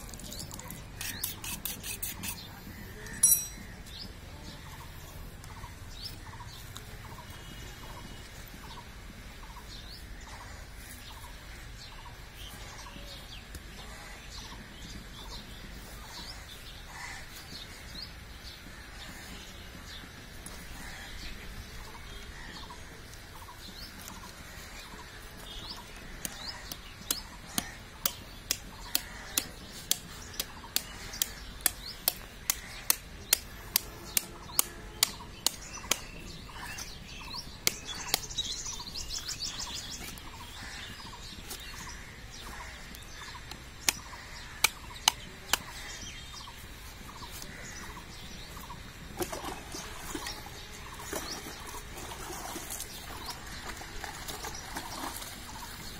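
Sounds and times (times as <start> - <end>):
birds chirping: 0.0 - 55.9
high bird trill: 0.4 - 3.9
sharp bird ticks: 26.2 - 40.4, 42.9 - 45.9.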